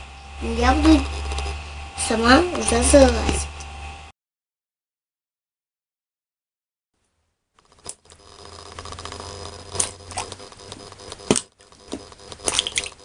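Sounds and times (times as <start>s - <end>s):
low hum: 0.0s - 4.1s, 7.6s - 13.0s.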